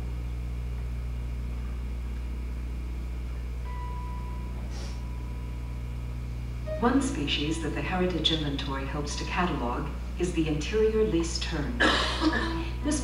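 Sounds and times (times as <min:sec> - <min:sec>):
low electrical hum: 0:00.0 - 0:13.0
thin high tone: 0:03.6 - 0:06.0.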